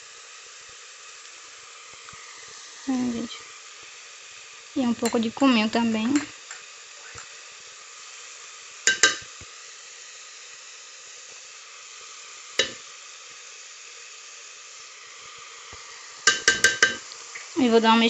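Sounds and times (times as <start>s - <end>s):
vegetables sizzling in oil: 0.0s - 18.0s
spoon clinking on pot: 5.0s - 5.2s, 6.1s - 6.6s, 8.9s - 9.3s, 12.6s - 12.8s, 16.3s - 17.0s.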